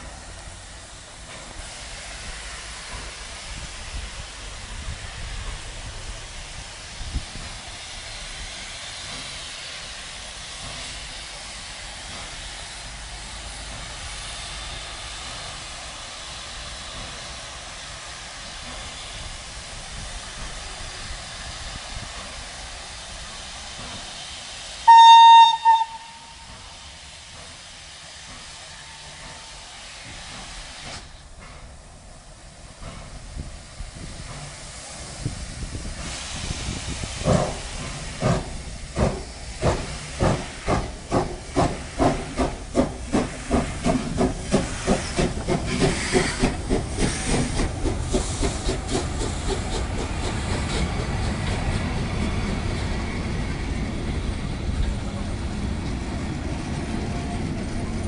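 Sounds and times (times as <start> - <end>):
steam hissing: 0.0 - 58.0
steam whistle blast: 24.8 - 26.6.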